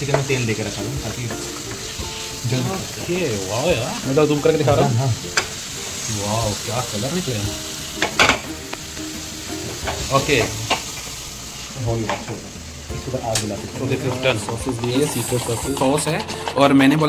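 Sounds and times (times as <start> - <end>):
chicken sizzling in oil: 0.0 - 16.6
spatula scraping pan: 13.7 - 16.6.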